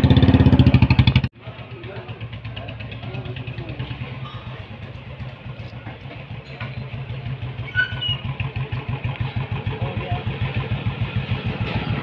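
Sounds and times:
motorcycle engine running: 0:00.0 - 0:12.0
brief high squeak: 0:07.6 - 0:08.3.

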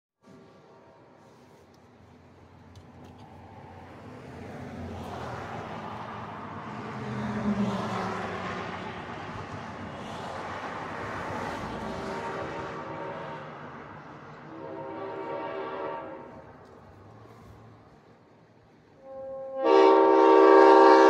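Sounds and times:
road traffic passing: 0:00.2 - 0:21.0.

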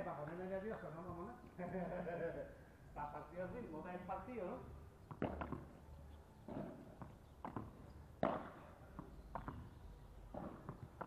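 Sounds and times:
rackets striking ball: 0:05.0 - 0:05.7, 0:06.5 - 0:09.7, 0:10.3 - 0:11.0
ball bouncing on court: 0:05.1 - 0:05.7, 0:06.5 - 0:09.7, 0:10.3 - 0:11.0.

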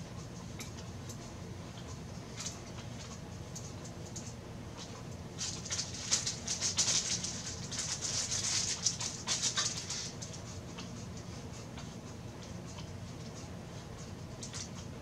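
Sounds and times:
plastic wrapping crinkling: 0:05.4 - 0:10.4.

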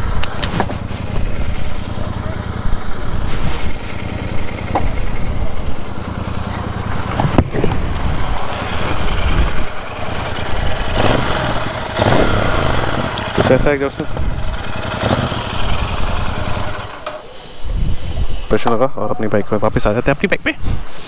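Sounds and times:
motorcycle engine idling: 0:00.0 - 0:17.4.

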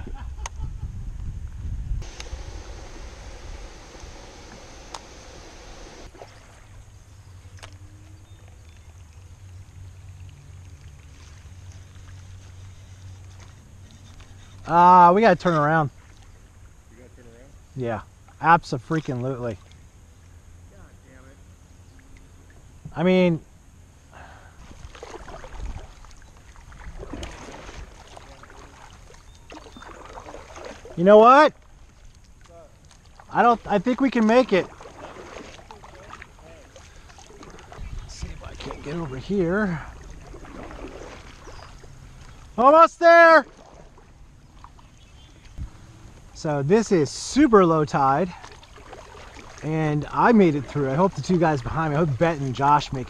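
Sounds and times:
wind rumble on microphone: 0:00.0 - 0:06.1, 0:37.3 - 0:42.6, 0:43.7 - 0:46.4
water sloshing and trickling: 0:02.0 - 0:17.2, 0:18.1 - 0:20.3, 0:24.5 - 0:53.0
light click: 0:03.9 - 0:05.1.

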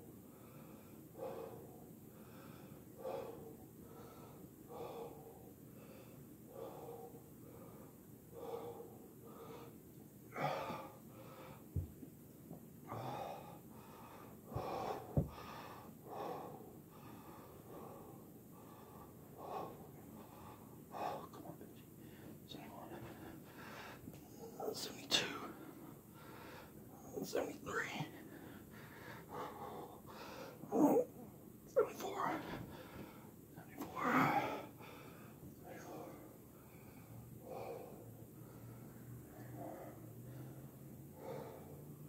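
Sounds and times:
man breathing hard: 0:00.0 - 0:11.9, 0:12.8 - 0:27.0, 0:27.7 - 0:31.2, 0:31.8 - 0:42.0.

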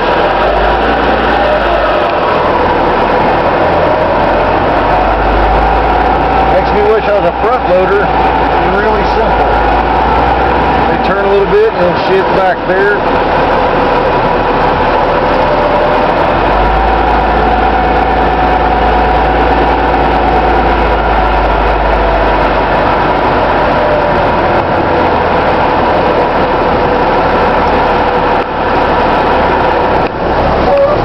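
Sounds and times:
deep low hum: 0:00.0 - 0:31.0
garbage truck engine running: 0:00.0 - 0:31.0.

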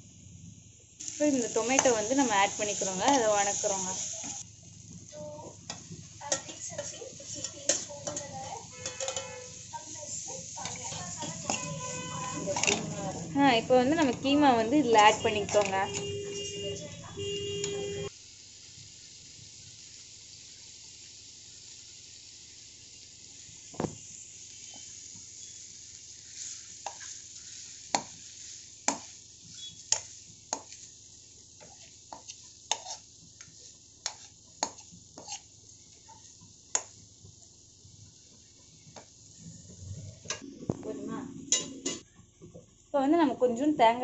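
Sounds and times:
meat sizzling in a pan: 0:00.0 - 0:44.0
spoon scraping a pan: 0:01.4 - 0:04.4, 0:05.6 - 0:18.1, 0:24.6 - 0:37.0, 0:41.5 - 0:42.0.

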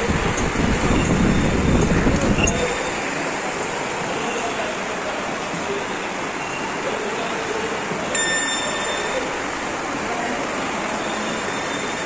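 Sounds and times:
station concourse rushing noise: 0:00.0 - 0:12.0
short electronic beep: 0:08.2 - 0:09.4.

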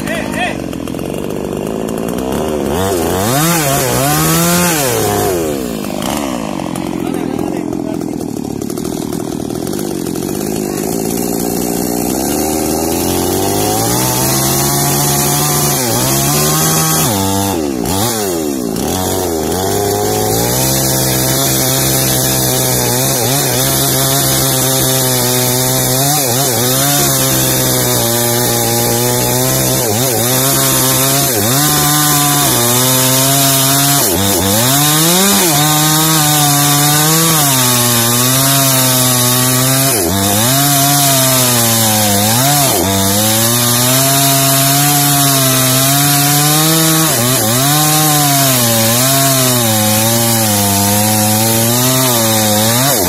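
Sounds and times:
chainsaw cutting wood: 0:00.0 - 0:53.0.

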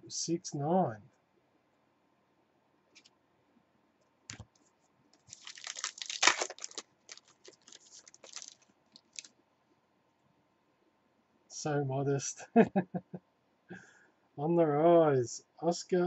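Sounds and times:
cards rustling and clicking: 0:04.3 - 0:09.3
foil wrapper tearing and crinkling: 0:05.2 - 0:09.3.

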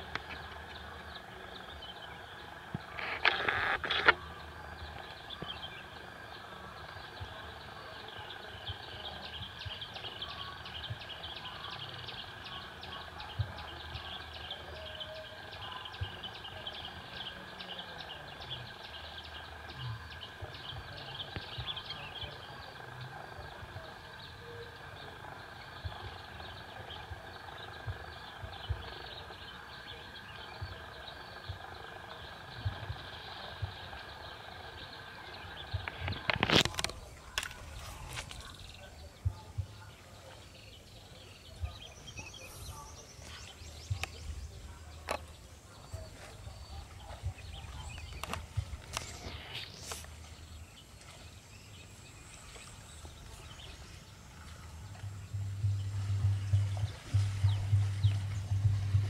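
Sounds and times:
soft low thumps: 0:12.6 - 0:15.2, 0:24.5 - 0:36.2, 0:36.9 - 0:49.4, 0:50.1 - 0:59.0
steady high drone: 0:52.8 - 0:59.0.

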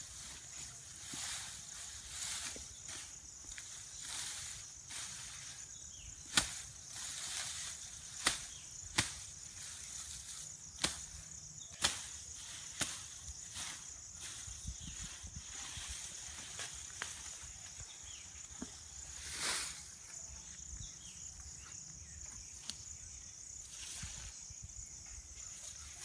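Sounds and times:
sickle cutting grass stems: 0:00.0 - 0:19.9
high insect drone: 0:00.0 - 0:26.0.

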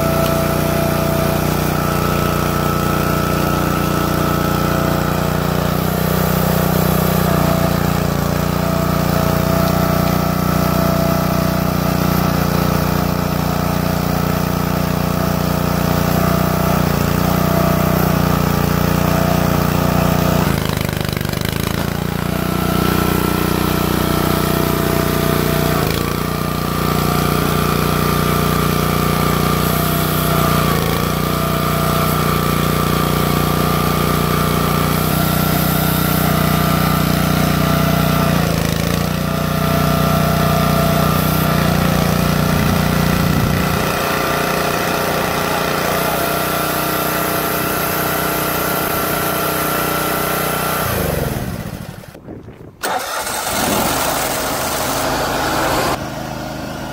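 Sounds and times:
small gas engine running: 0:00.0 - 0:56.9.

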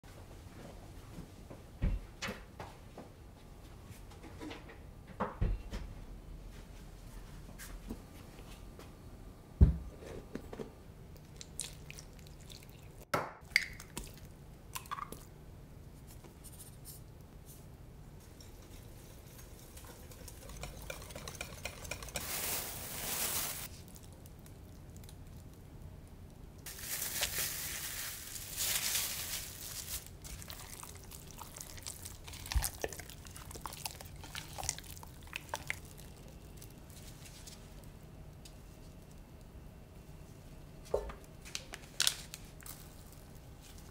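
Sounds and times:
plastic bag crinkling: 0:22.2 - 0:24.3, 0:26.7 - 0:33.0.

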